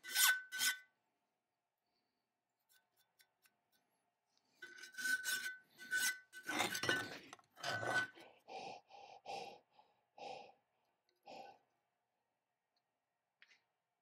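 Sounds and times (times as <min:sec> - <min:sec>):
metal scraping on cast iron: 0:00.0 - 0:00.9, 0:04.6 - 0:08.2.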